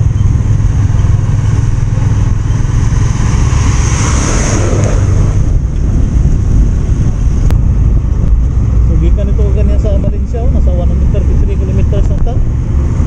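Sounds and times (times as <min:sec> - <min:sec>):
motorcycle engine rumble: 0:00.0 - 0:13.0
rush of passing truck: 0:01.4 - 0:08.8.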